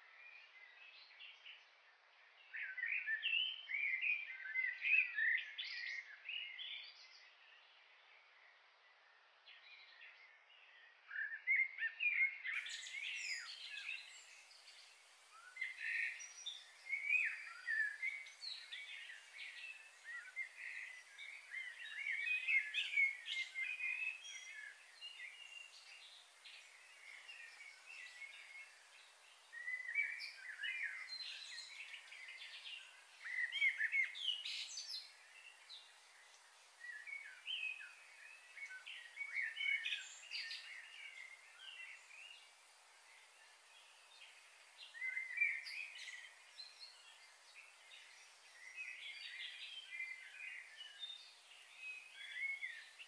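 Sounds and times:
faint steady hiss: 0:00.0 - 0:53.0
birds chirping: 0:12.4 - 0:53.0.

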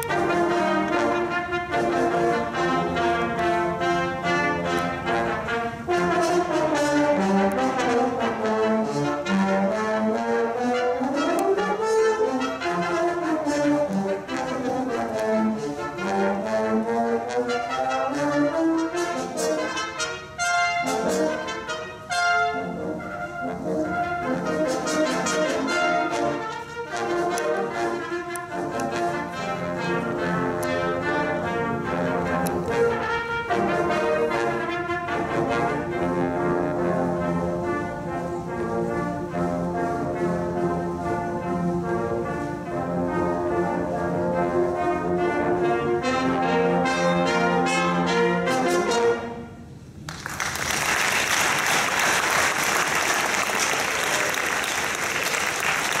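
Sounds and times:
brass ensemble with drums: 0:00.0 - 0:56.0
audience applauding: 0:50.1 - 0:56.0.

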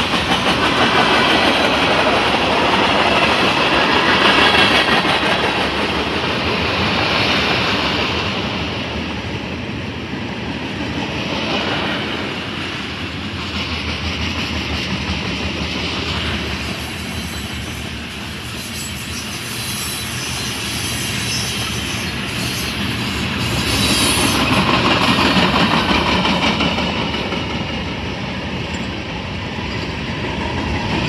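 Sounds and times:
freight train wheels rumbling: 0:00.0 - 0:31.0.

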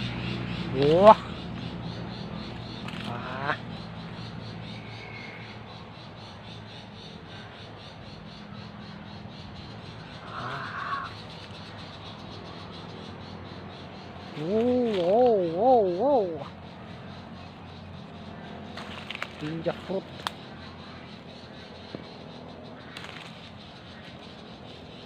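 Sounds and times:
harsh bird call: 0:10.1 - 0:11.4.

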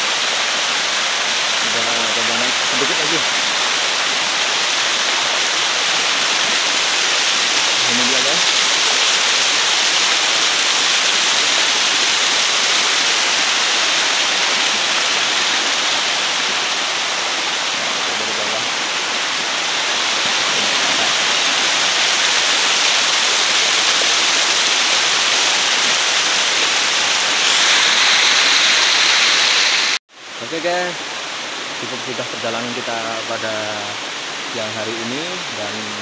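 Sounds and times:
waterfall rushing: 0:00.0 - 0:36.0.

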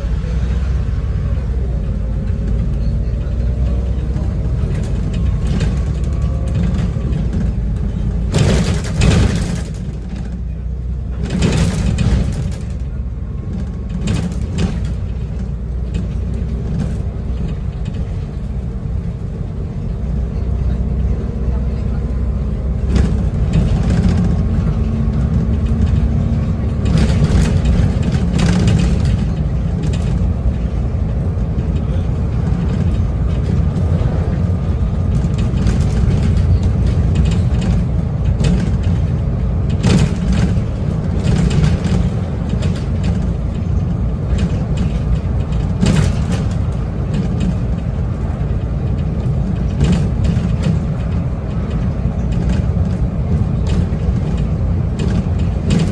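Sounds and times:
bus engine and road rumble: 0:00.0 - 0:55.9
rattles and knocks of loose fittings: 0:22.8 - 0:55.9.

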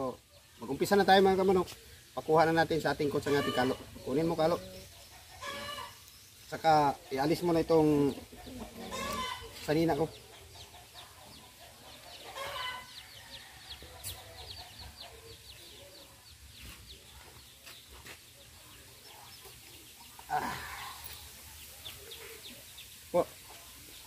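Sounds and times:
chickens clucking: 0:00.0 - 0:24.0
loud chicken call: 0:03.2 - 0:03.8, 0:05.4 - 0:06.0, 0:08.7 - 0:09.6.

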